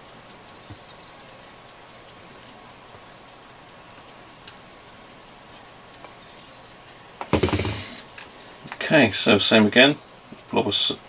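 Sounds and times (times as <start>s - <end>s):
faint ticks: 0.0s - 7.3s
background hiss: 0.0s - 11.0s
loud burst of noise: 7.3s - 8.0s.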